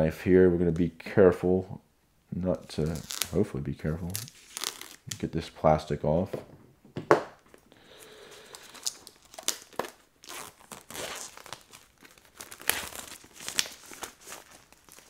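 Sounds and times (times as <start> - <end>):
plastic shrink wrap crinkling: 2.6 - 5.3, 7.8 - 15.0.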